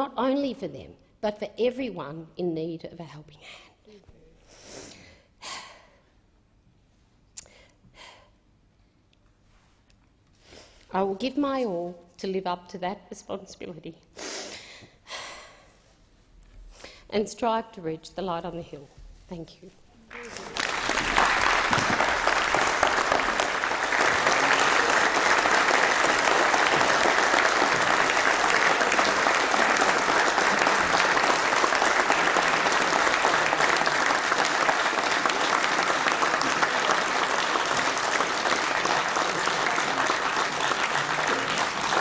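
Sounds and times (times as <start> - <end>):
crowd applause: 20.1 - 42.0.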